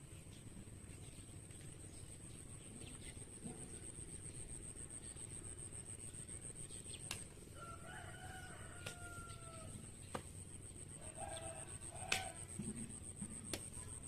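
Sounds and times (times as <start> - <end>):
rooster crowing: 7.6 - 9.9, 11.0 - 12.6.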